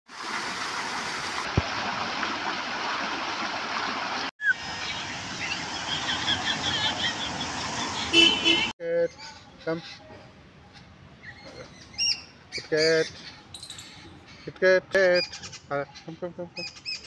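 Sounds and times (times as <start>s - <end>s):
rushing outdoor noise: 0.1s - 8.7s.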